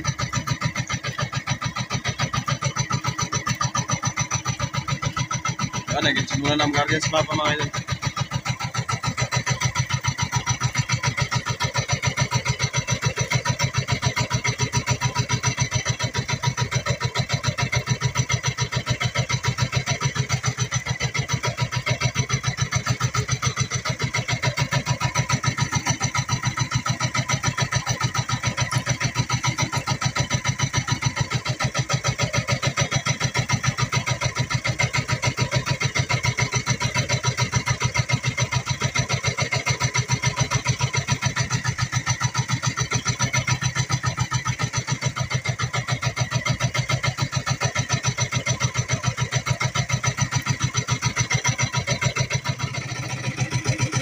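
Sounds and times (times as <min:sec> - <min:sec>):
boat engine chugging: 0:00.0 - 0:54.0.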